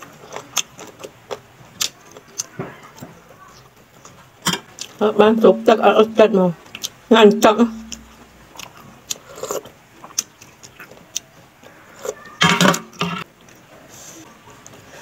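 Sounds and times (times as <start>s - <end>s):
chewing: 0.0s - 5.0s, 6.7s - 7.0s, 7.8s - 12.4s.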